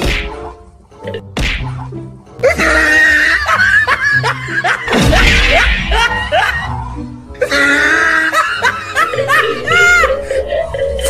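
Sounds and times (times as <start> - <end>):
music: 0.0 - 11.0
bursts of laughter: 2.5 - 6.7, 7.4 - 10.2.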